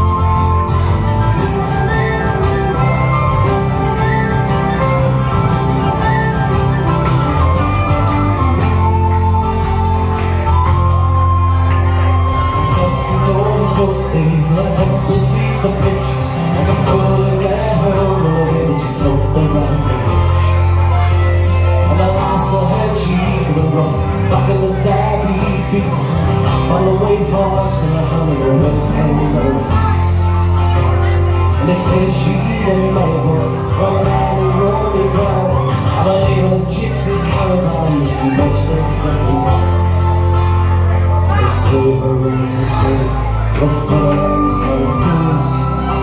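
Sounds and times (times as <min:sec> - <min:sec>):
tin whistle: 0:00.0 - 0:13.3, 0:44.2 - 0:46.0
electric bass: 0:00.0 - 0:46.0
fiddle melody: 0:00.0 - 0:46.0
strummed acoustic guitars: 0:00.0 - 0:46.0.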